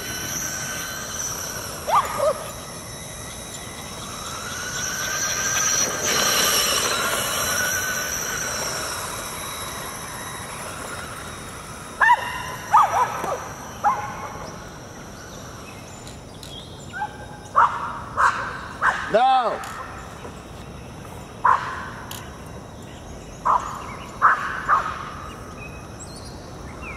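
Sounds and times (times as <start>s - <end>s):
toy truck motor whining: 0.0s - 16.8s
dogs barking: 1.8s - 2.6s, 12.0s - 14.5s, 17.0s - 19.9s, 21.4s - 21.9s, 23.4s - 25.0s.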